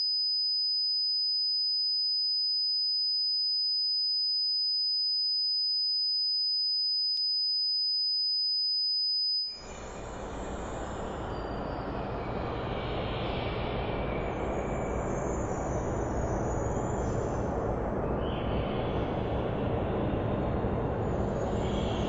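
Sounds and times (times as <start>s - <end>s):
high-pitched pure tone: 0.0s - 9.6s.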